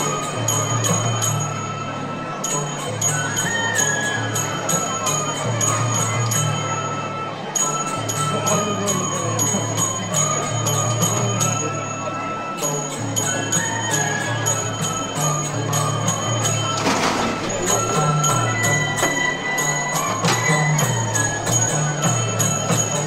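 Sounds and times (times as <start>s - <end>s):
fast metal percussion: 12.6s - 23.0s.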